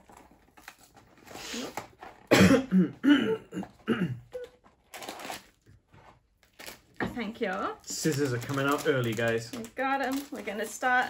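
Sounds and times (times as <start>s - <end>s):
person coughing: 2.3s - 4.4s.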